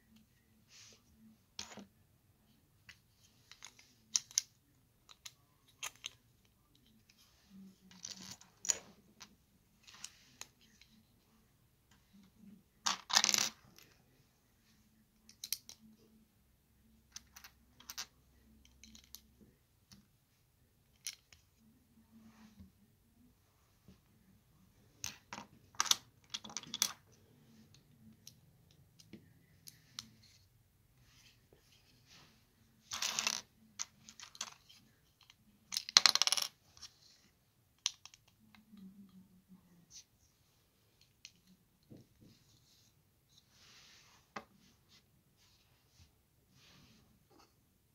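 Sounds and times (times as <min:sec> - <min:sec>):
plastic bricks clattering and clicking: 0:25.0 - 0:27.0, 0:32.9 - 0:36.6, 0:37.8 - 0:38.4.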